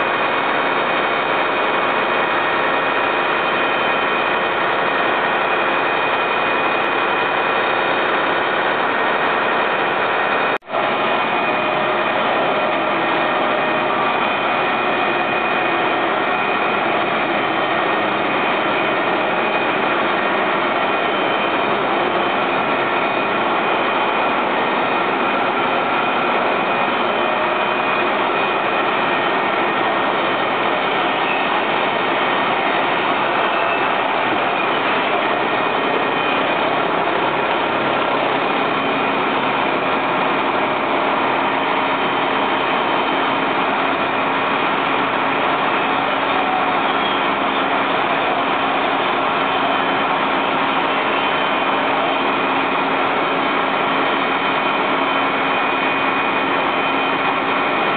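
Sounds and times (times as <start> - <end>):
fire engine engine droning: 0.0 - 57.9.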